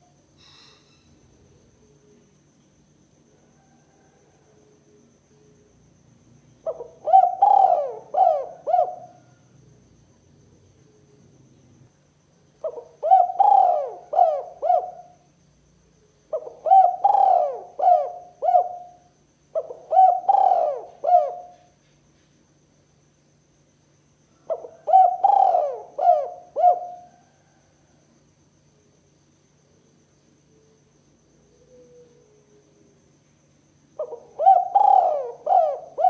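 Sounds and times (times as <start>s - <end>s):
dove cooing: 6.6s - 9.5s, 12.6s - 15.2s, 16.3s - 21.7s, 24.4s - 27.6s, 31.5s - 32.8s, 34.0s - 36.0s.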